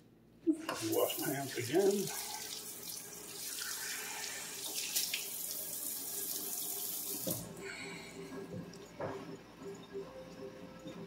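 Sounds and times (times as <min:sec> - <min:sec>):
tap running into sink: 0:07.1 - 0:07.5.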